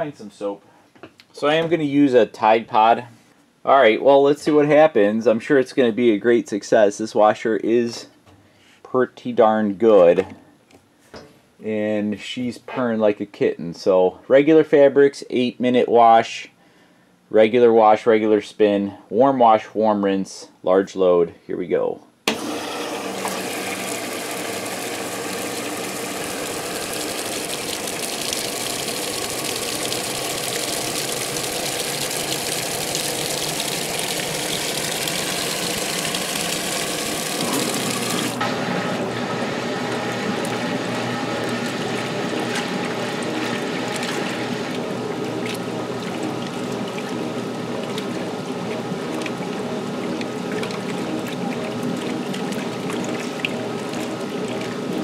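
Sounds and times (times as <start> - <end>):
water pouring into washing machine: 22.3 - 55.0.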